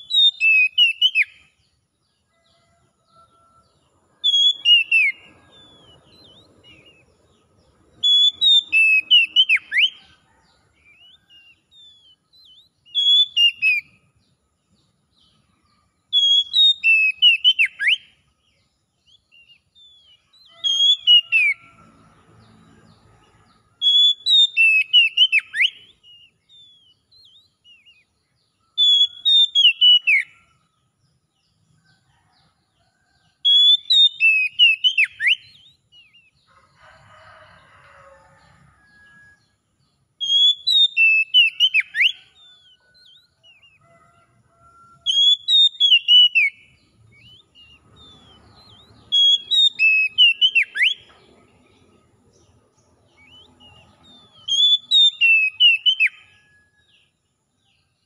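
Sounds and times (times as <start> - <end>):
bird singing whistled phrases: 0.0 - 1.5, 4.2 - 7.0, 8.0 - 10.0, 11.8 - 13.9, 16.1 - 18.1, 23.8 - 28.0, 28.8 - 30.3, 33.5 - 36.2, 40.2 - 42.3, 45.1 - 46.6, 48.7 - 51.0, 54.4 - 56.2.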